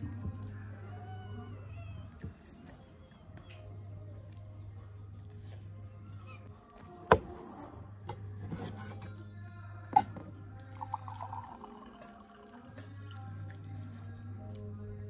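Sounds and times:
water poured into a mug: 0:10.5 - 0:12.8.

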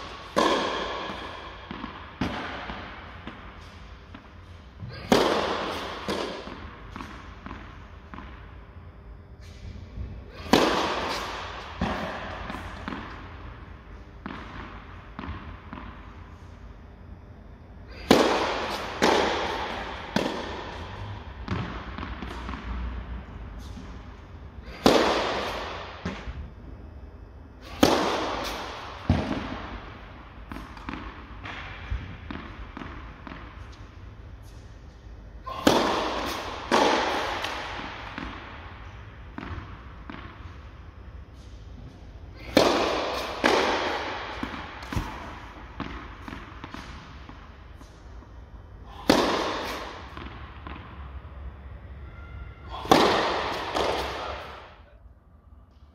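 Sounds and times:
tennis ball bouncing on court: 0:00.0 - 0:04.3, 0:04.9 - 0:08.5, 0:10.4 - 0:13.4, 0:14.2 - 0:16.0, 0:18.0 - 0:23.0, 0:24.7 - 0:26.4, 0:27.7 - 0:29.8, 0:30.5 - 0:34.6, 0:35.5 - 0:40.7, 0:42.4 - 0:48.3, 0:49.0 - 0:51.1, 0:52.8 - 0:54.8
tennis racket hitting ball: 0:00.0 - 0:04.3, 0:04.9 - 0:08.4, 0:10.3 - 0:13.3, 0:17.9 - 0:22.9, 0:24.6 - 0:26.4, 0:27.6 - 0:29.9, 0:35.4 - 0:40.6, 0:42.4 - 0:48.0, 0:48.9 - 0:51.0, 0:52.7 - 0:54.8.

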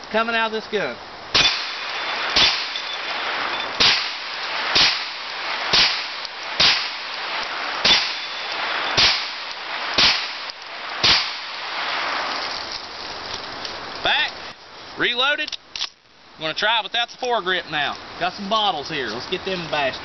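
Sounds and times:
gunshots: 0:01.3 - 0:12.2.

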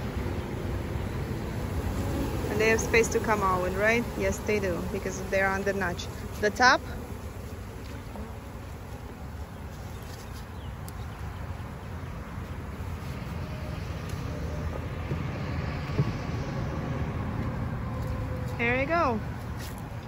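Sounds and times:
honeybees buzzing: 0:00.0 - 0:20.0
low outdoor rumble: 0:00.0 - 0:20.0.

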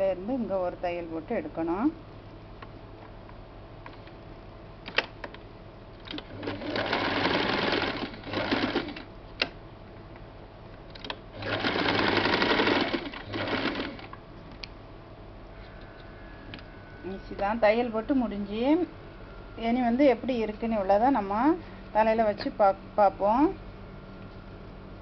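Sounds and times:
sewing machine stitching: 0:06.1 - 0:09.1, 0:11.4 - 0:14.1.

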